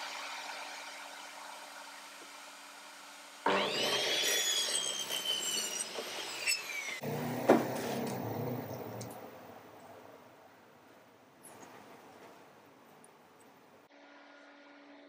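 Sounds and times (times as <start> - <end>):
mitre saw cutting wood: 0.0 - 9.2.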